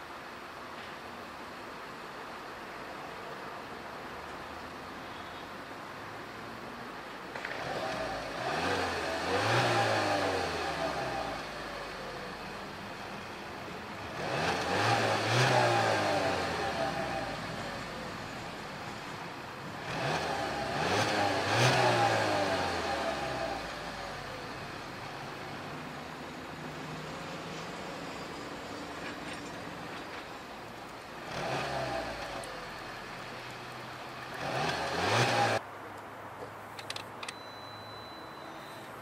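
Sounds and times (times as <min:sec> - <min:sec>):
car engine idling and revving: 0:07.4 - 0:35.7.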